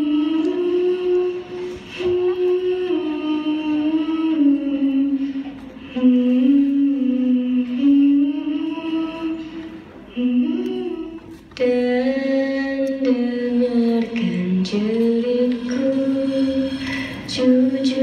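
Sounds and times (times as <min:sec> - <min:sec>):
song over sound system: 0:00.0 - 0:18.0.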